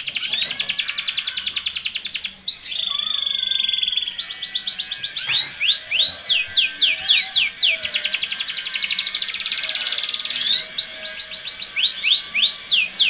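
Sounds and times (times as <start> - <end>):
canary rapid trill: 0.0 - 13.0.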